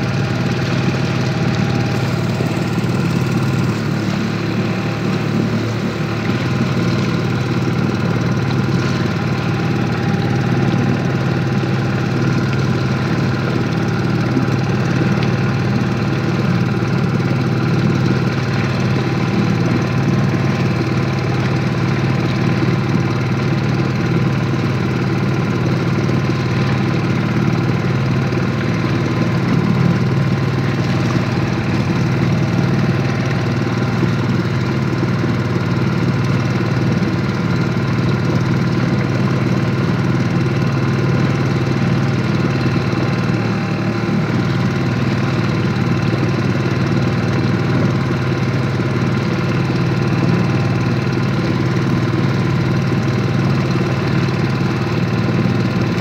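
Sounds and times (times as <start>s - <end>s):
outboard motor running steadily: 0.0s - 56.0s.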